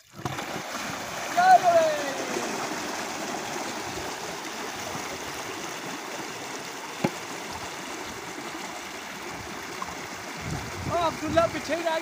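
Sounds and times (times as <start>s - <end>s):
water gushing through channel: 0.0s - 12.0s.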